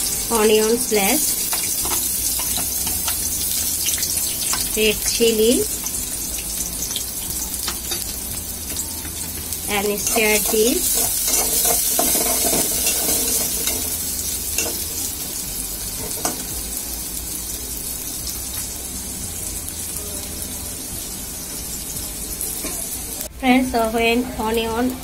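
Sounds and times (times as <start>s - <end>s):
onions sizzling in hot oil: 0.0s - 23.3s
spoon scraping a metal pot: 10.0s - 14.0s.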